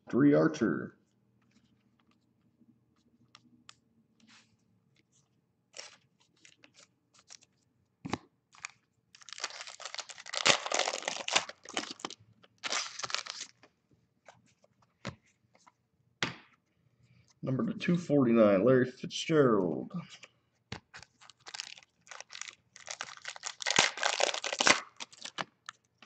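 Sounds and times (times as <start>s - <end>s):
cards clicking and rustling: 5.8s - 7.5s, 8.1s - 15.8s, 20.7s - 25.8s
foil pack tearing and crinkling: 8.6s - 13.5s, 21.0s - 25.4s.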